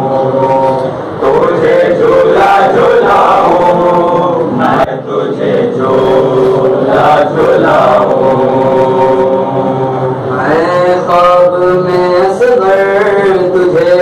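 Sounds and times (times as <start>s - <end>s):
men chanting a lament: 0.0s - 14.0s.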